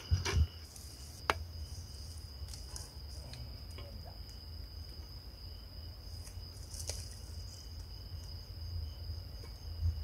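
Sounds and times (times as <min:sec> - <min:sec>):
crickets trilling: 0:00.0 - 0:10.0.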